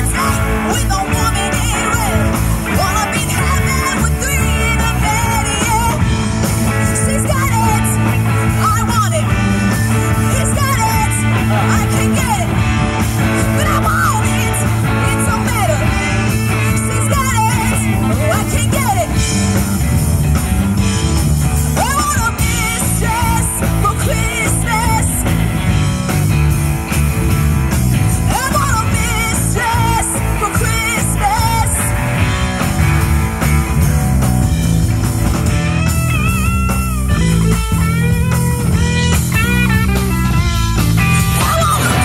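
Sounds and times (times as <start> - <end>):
woman singing: 0.0 - 9.4, 10.0 - 12.6, 13.2 - 19.2, 21.8 - 25.2, 28.1 - 32.0, 41.3 - 42.0
drum kit: 0.0 - 42.0
electric guitars: 0.0 - 42.0.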